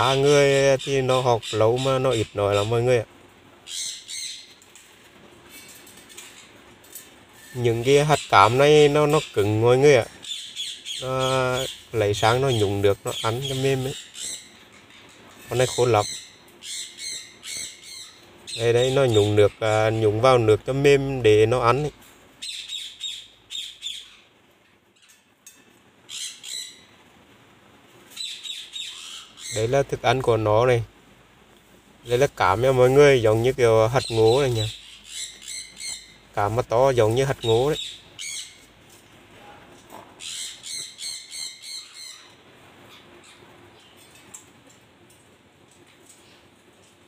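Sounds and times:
macaw squawking: 0:00.0 - 0:04.6, 0:07.4 - 0:20.4, 0:22.4 - 0:24.3, 0:26.1 - 0:27.0, 0:28.2 - 0:29.9, 0:32.1 - 0:38.7, 0:40.2 - 0:43.5.

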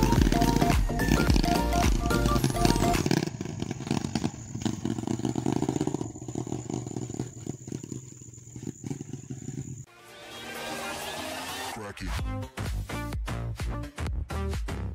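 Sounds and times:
small motorcycle engine: 0:00.0 - 0:09.9.

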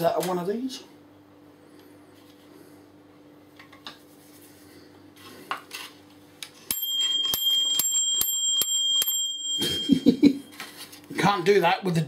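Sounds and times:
microwave timer bell dinging: 0:06.7 - 0:10.7.

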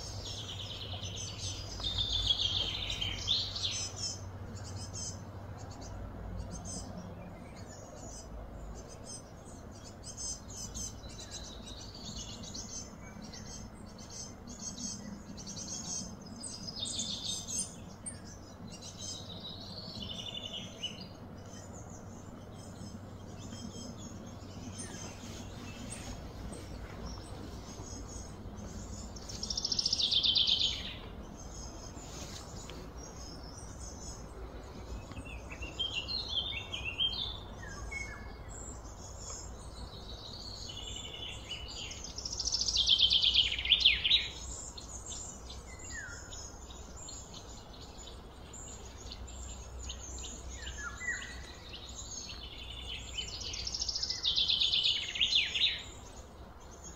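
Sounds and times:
low background rumble: 0:00.0 - 0:55.0
insects: 0:00.0 - 0:56.9.

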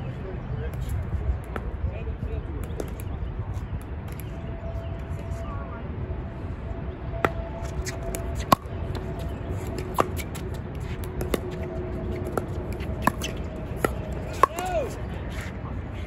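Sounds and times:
wind on microphone: 0:00.0 - 0:16.0.

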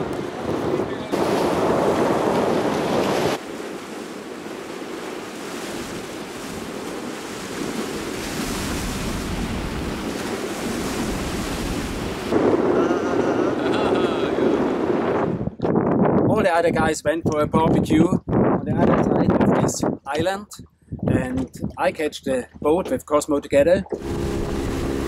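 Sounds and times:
wind buffeting microphone: 0:00.0 - 0:03.4, 0:04.9 - 0:25.0
sea waves splashing on rocks: 0:00.0 - 0:12.6.

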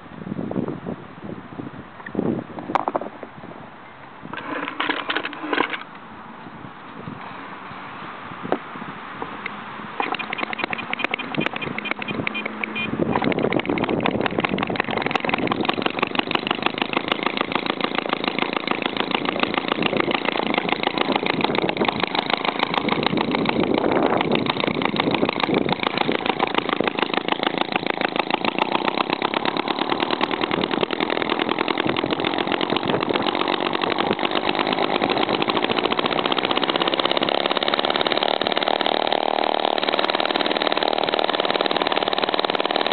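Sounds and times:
hit-and-miss gas engine running: 0:09.2 - 0:42.9.

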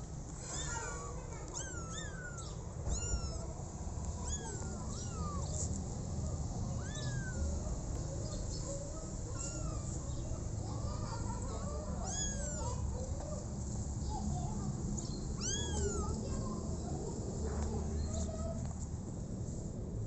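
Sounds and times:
kittens meowing: 0:00.4 - 0:05.8, 0:06.7 - 0:10.3, 0:10.9 - 0:12.9, 0:15.4 - 0:16.2.

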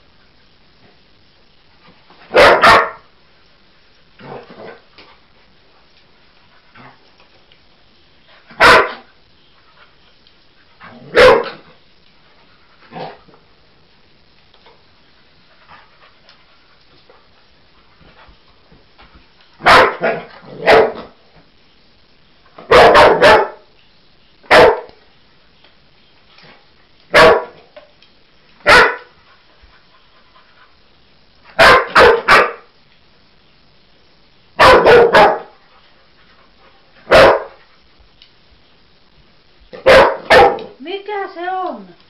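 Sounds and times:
dog barking: 0:02.3 - 0:03.0, 0:08.6 - 0:09.1, 0:11.1 - 0:11.6, 0:19.6 - 0:21.1, 0:22.6 - 0:23.6, 0:24.5 - 0:24.9, 0:27.1 - 0:27.6, 0:28.6 - 0:29.1, 0:31.6 - 0:32.7, 0:34.6 - 0:35.6, 0:37.1 - 0:37.6, 0:39.8 - 0:40.8.

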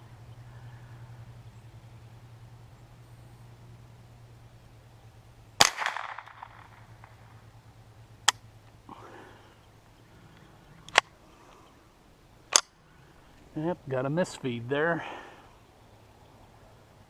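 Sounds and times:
rifle shots: 0:05.6 - 0:07.2.

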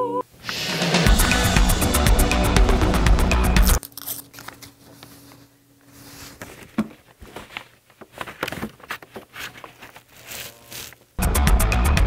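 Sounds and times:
soft handling noise: 0:04.3 - 0:11.2.

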